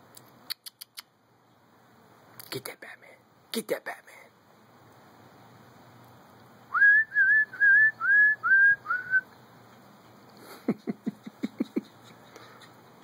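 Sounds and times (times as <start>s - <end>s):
person whistling short notes: 6.8s - 9.2s.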